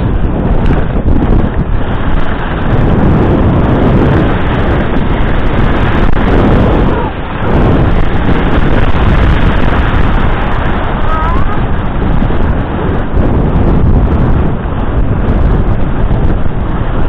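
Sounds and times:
skis scraping on snow: 0.0s - 11.2s
wind rushing over microphone: 0.0s - 17.0s.

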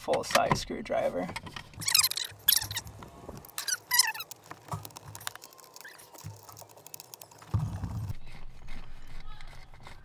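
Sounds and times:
short squeaks: 1.8s - 2.9s, 3.5s - 4.5s.

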